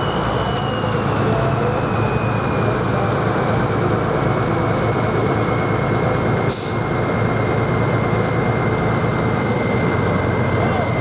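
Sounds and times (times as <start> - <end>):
high whine: 0.0 - 11.0
tractor diesel engine running: 0.0 - 11.0.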